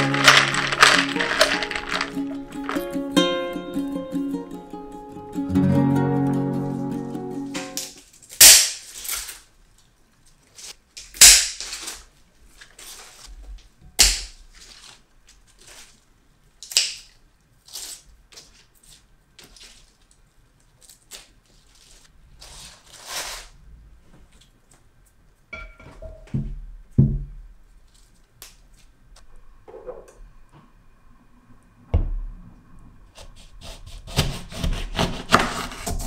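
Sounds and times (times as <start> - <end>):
leafy stems rustling: 0.0 - 3.9, 10.4 - 13.5, 14.2 - 16.1, 17.6 - 23.5.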